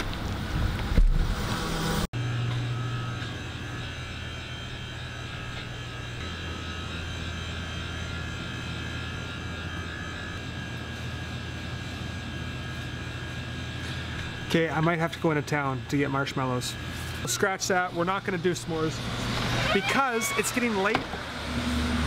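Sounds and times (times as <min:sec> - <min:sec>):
faint high whine: 0:00.0 - 0:22.0
low hum of shop interior: 0:01.6 - 0:22.0.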